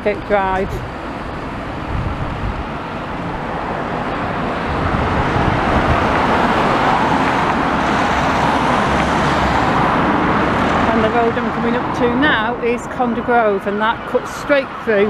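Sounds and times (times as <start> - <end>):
cars and vans driving past: 0.0 - 15.0.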